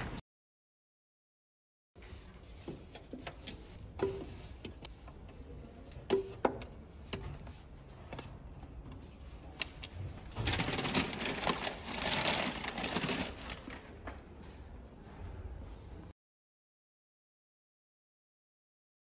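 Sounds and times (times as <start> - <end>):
magazines handled in plastic rack: 2.1 - 14.3
paper rustling: 9.0 - 14.2.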